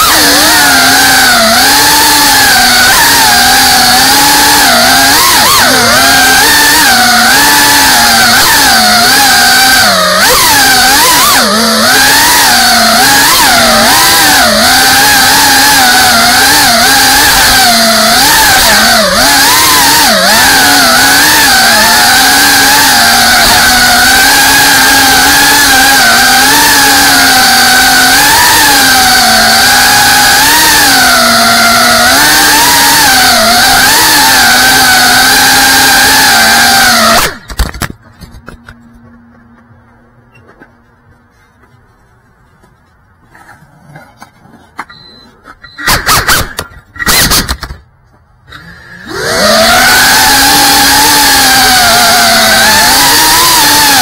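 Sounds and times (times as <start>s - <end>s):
drone motors whining: 0.0s - 40.7s, 48.5s - 54.0s.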